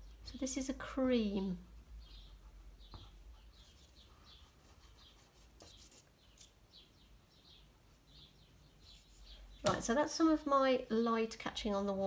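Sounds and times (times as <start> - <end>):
faint small-bird chirps: 2.0 - 9.7
pastel stick scratching paper: 2.4 - 6.5.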